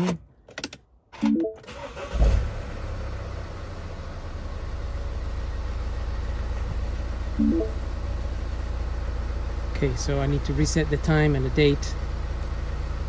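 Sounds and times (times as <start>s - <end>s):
diesel engine starting and idling: 1.5s - 13.0s
short tone: 7.4s - 7.9s.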